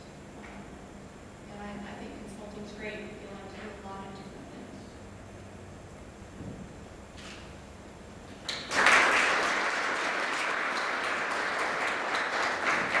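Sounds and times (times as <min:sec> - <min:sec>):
audience clapping: 0:08.4 - 0:13.0.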